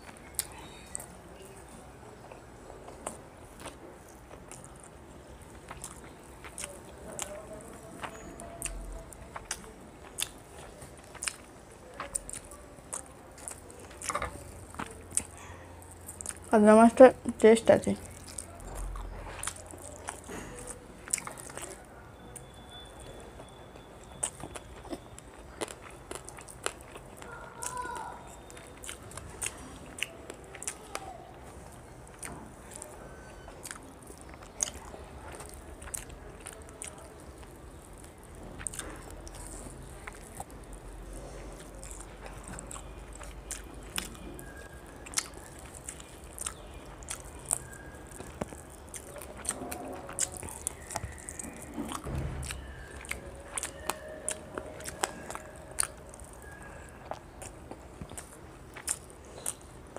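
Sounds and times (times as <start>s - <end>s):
person chewing: 0.0s - 59.9s
mouth clicks and lip smacks: 41.6s - 59.9s.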